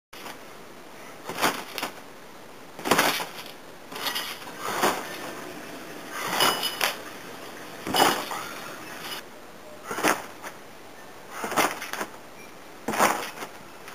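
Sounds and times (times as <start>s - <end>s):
trampoline springs creaking: 2.8s - 9.2s.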